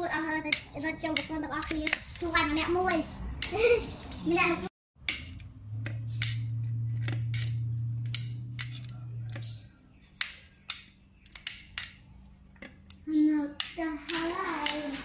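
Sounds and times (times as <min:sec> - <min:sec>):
chopsticks clicking against plate: 0:00.4 - 0:02.3, 0:05.0 - 0:15.0.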